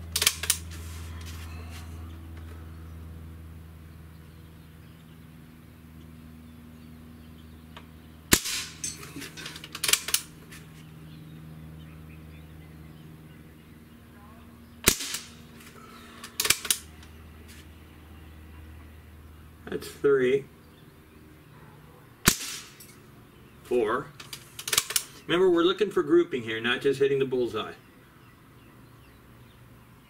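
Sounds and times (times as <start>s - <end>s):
air rifle shot cracks: 8.3s - 8.9s, 14.8s - 16.9s, 22.2s - 22.9s.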